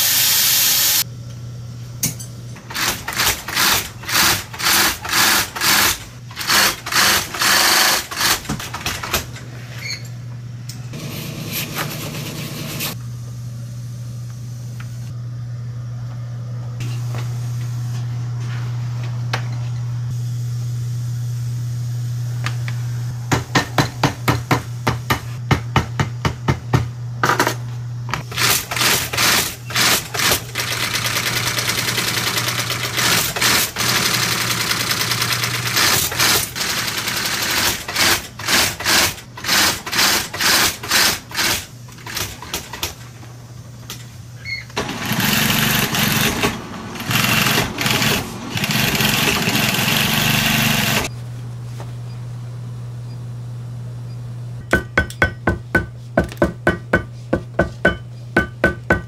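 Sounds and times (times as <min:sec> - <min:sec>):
steady low hum: 0:01.0 - 0:30.8, 0:50.9 - 0:59.0
sewing machine stitching: 0:02.7 - 0:08.8, 0:28.3 - 0:42.3, 0:44.8 - 0:51.1.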